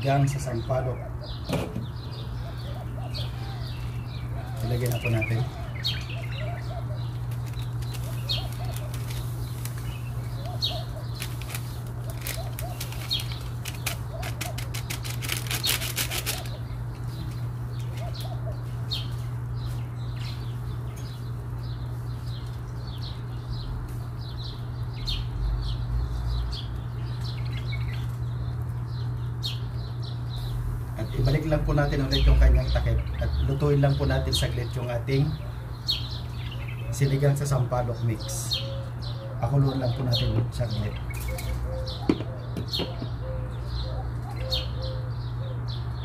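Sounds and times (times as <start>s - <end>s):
small birds chirping: 0.0s - 46.0s
steady low hum: 0.0s - 46.0s
fluttering rattle: 11.2s - 16.6s.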